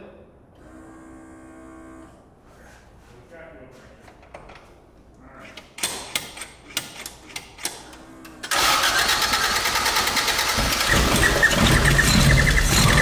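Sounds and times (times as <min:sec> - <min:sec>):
car engine cranking: 0:08.4 - 0:13.0.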